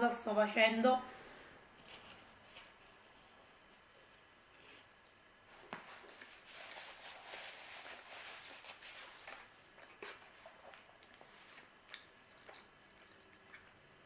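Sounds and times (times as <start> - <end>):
paper napkin rustling: 5.5 - 11.6.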